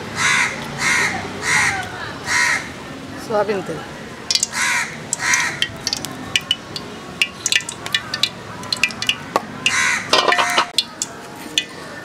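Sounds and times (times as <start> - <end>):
crow cawing: 0.2 - 2.7, 4.5 - 5.7, 9.7 - 10.7
oil crackling and spitting: 4.3 - 11.8.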